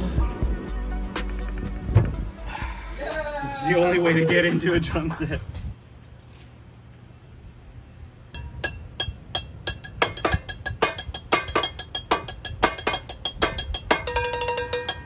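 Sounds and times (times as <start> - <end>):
sticks drumming on metal pots: 8.4 - 15.0.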